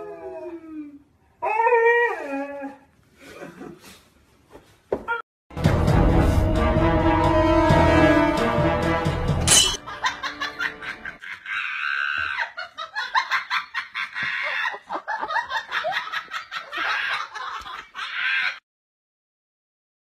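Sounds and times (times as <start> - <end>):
person laughing hard: 9.8 - 18.6.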